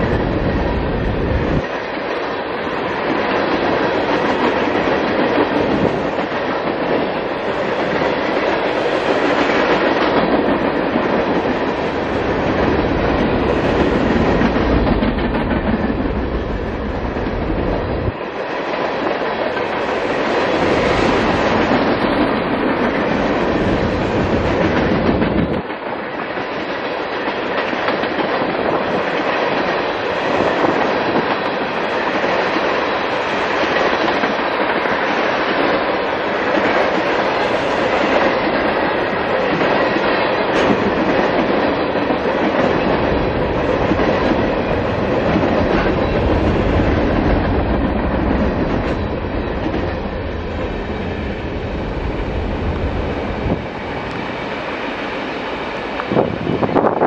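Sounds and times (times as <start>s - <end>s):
freight train rolling past: 0.0s - 57.0s.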